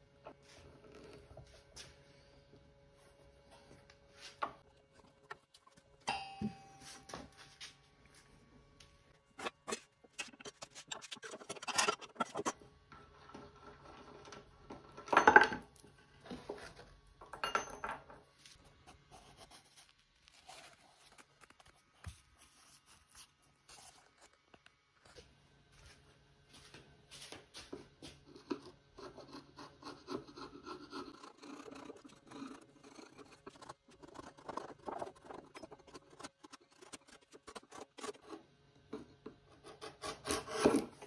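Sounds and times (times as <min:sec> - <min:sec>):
metal tools clinking on wood: 0:17.2 - 0:18.2.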